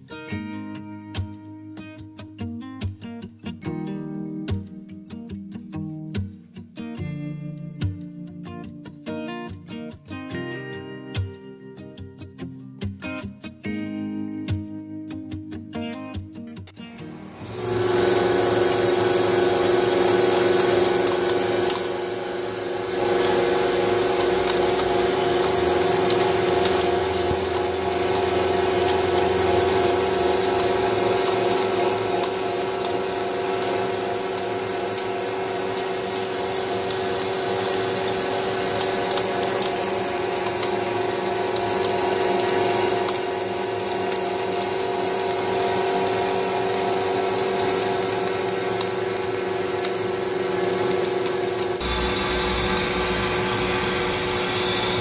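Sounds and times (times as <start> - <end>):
tool cutting steel: 17.1 - 55.0
lathe machine whine: 17.3 - 55.0.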